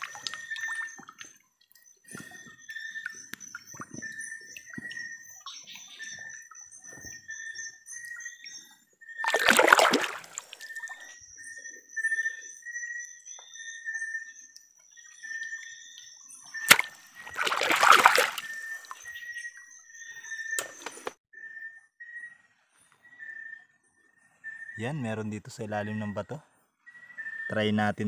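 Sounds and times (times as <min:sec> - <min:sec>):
hands splashing in water: 0:00.0 - 0:00.7, 0:09.2 - 0:11.0, 0:16.7 - 0:19.0.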